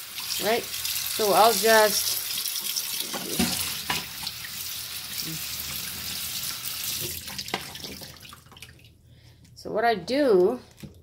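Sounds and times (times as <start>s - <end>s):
faucet water splashing in sink: 0.0s - 8.9s.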